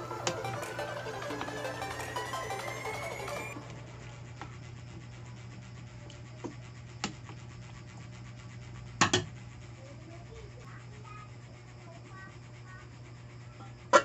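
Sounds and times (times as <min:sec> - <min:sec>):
low hum: 0:00.0 - 0:06.2.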